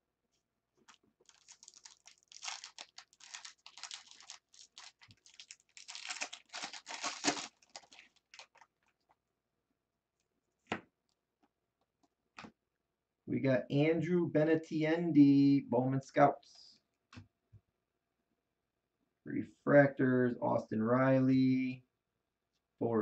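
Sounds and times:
foil wrapper tearing and crinkling: 0.8 - 8.9.

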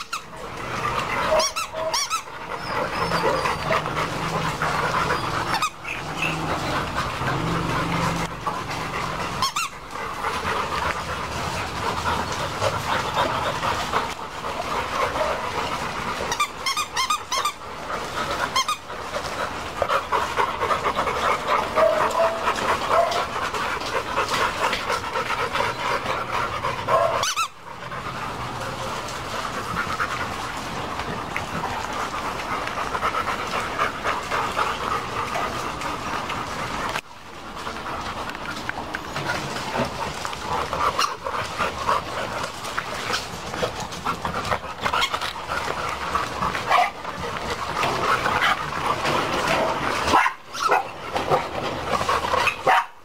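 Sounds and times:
dogs panting: 0.0 - 53.0.

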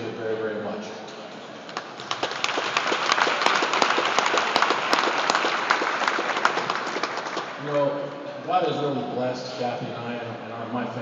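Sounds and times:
crowd applauding: 1.8 - 7.8.

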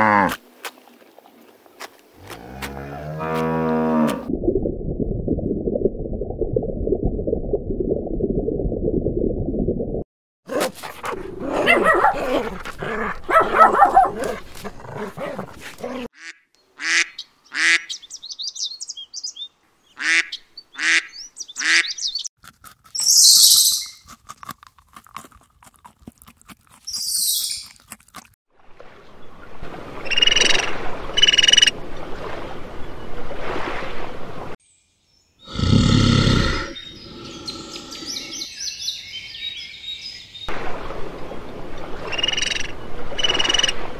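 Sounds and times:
dogs growling and barking: 10.5 - 16.1.

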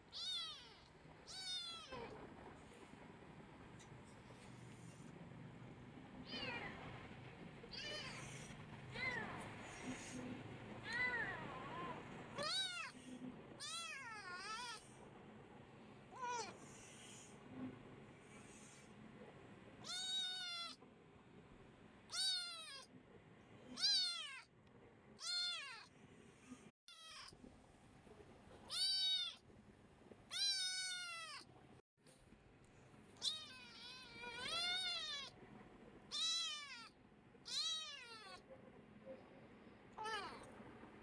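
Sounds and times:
kitten meowing: 0.1 - 2.0, 12.4 - 12.9, 19.8 - 20.8, 22.1 - 22.8, 23.8 - 24.5, 25.2 - 25.9, 26.9 - 27.3, 28.7 - 29.4, 30.3 - 31.5, 33.2 - 35.3, 36.1 - 36.9, 37.5 - 38.4.

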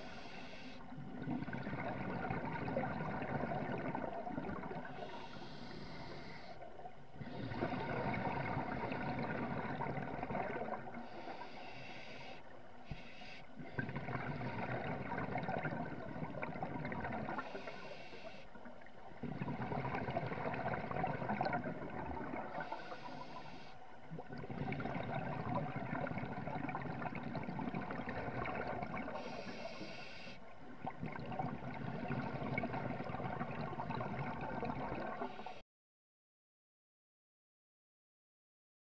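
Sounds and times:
scuba regulator inhale hiss: 0.0 - 0.8, 4.9 - 6.6, 11.0 - 13.7, 17.4 - 18.6, 22.5 - 23.8, 29.1 - 30.4, 35.2 - 35.6
gurgling exhaust bubbles: 1.0 - 4.9, 13.6 - 17.5, 19.2 - 22.7, 24.0 - 29.2, 30.8 - 35.3.

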